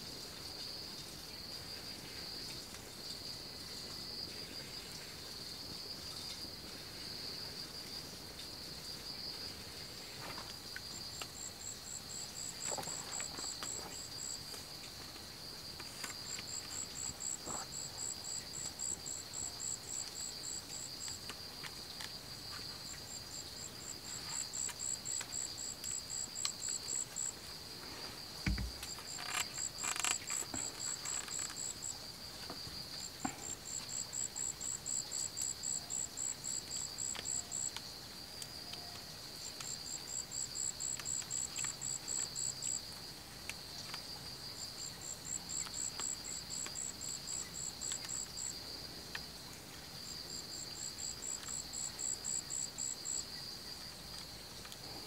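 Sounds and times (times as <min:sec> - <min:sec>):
crackling handling noise: 0:28.2 - 0:31.8
soft thump: 0:28.4 - 0:28.8.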